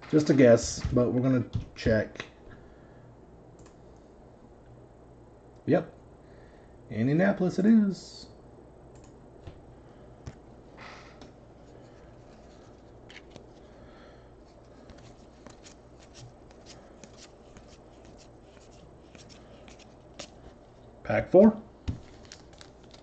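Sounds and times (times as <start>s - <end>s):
low room hum: 0.0s - 23.0s
cards swishing and clicking: 14.5s - 20.6s.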